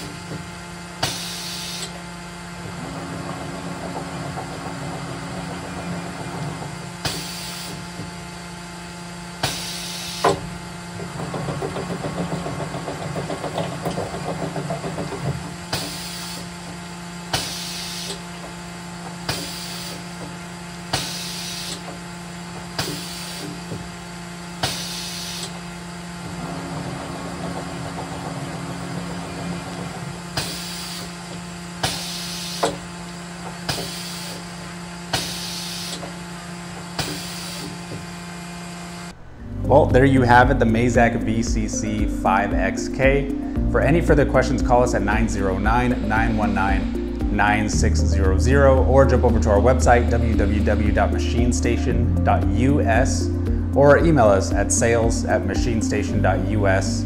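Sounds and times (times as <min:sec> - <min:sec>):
steady machine hum: 0:00.0 - 0:57.0
short sharp air hisses: 0:01.0 - 0:02.0, 0:07.0 - 0:07.8, 0:09.4 - 0:10.4, 0:15.7 - 0:16.4, 0:17.3 - 0:18.2, 0:19.3 - 0:20.0, 0:20.9 - 0:21.8, 0:22.8 - 0:23.6, 0:24.6 - 0:25.6, 0:31.8 - 0:32.8.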